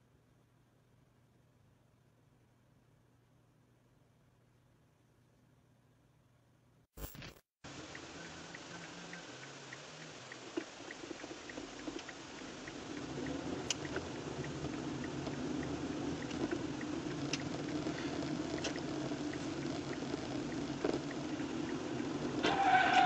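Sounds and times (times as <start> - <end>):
sharp clicks: 7.0 - 22.4
faint regular ticking: 7.6 - 22.8
car engine and tyre noise: 7.7 - 23.0.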